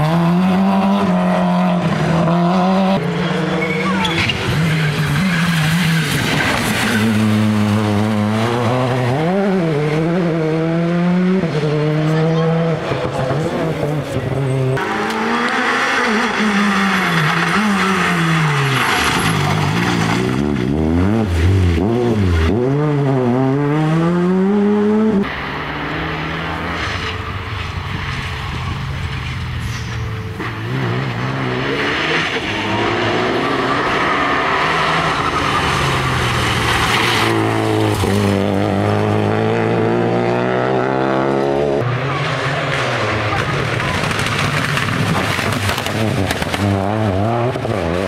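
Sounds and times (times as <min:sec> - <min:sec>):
rally car engine revving: 0:00.0 - 0:48.0.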